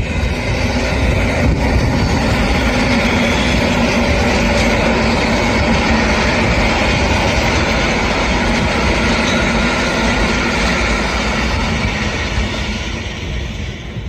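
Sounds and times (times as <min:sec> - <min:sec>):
train wheels on rail: 0:00.0 - 0:14.0.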